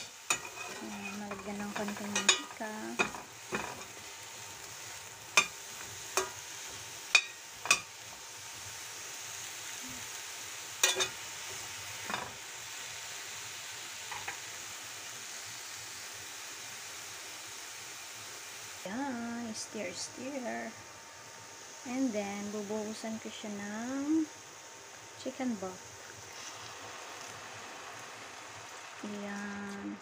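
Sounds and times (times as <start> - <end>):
metal spatula scraping pan: 0.0 - 4.0
vegetables sizzling in hot oil: 0.0 - 30.0.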